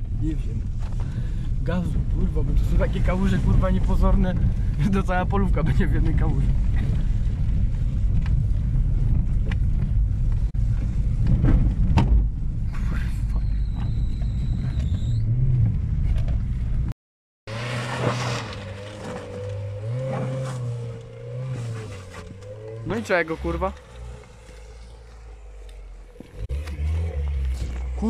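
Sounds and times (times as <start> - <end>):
car engine and tyre rumble: 0.0 - 28.0
car engine revving in mud: 17.5 - 28.0.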